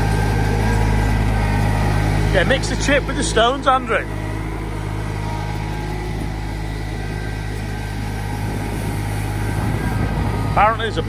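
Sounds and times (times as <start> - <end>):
small diesel tractor engine running: 0.0 - 11.0.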